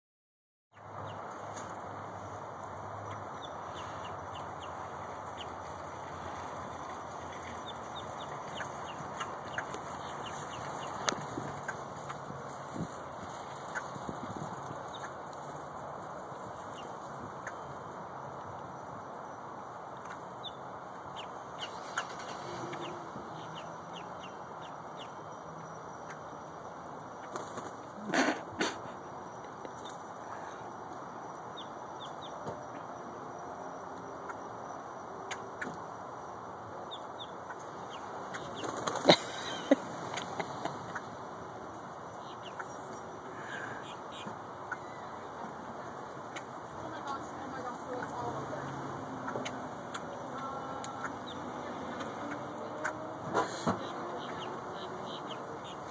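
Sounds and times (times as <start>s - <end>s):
steady background noise: 0.8s - 55.9s
grackles chirping: 3.0s - 18.0s, 34.0s - 55.9s.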